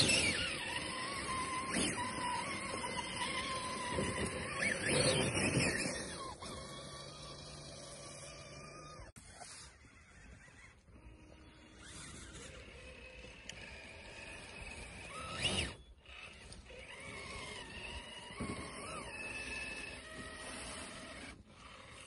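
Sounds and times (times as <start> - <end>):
electric motor and gear whine: 0.0 - 22.0.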